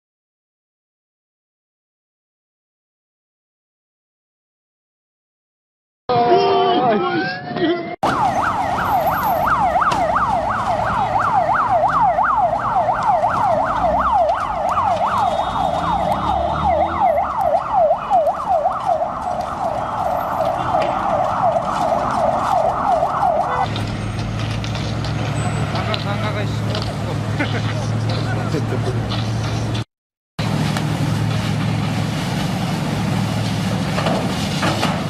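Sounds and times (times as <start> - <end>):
siren yelping: 8.0 - 23.7.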